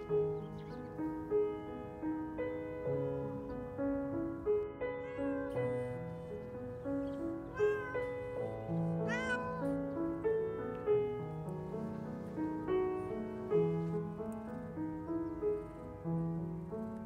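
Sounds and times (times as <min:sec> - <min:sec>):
gentle solo piano music: 0:00.0 - 0:17.0
cat meowing: 0:05.0 - 0:06.1, 0:07.1 - 0:09.9.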